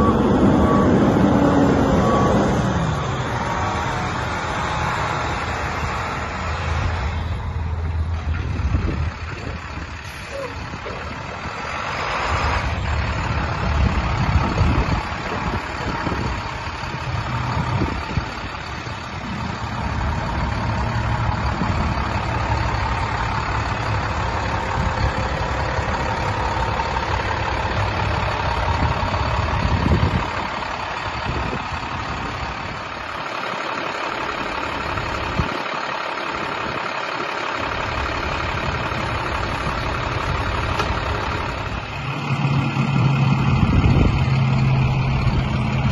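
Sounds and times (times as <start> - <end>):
diesel truck engine idling: 0.0 - 45.9.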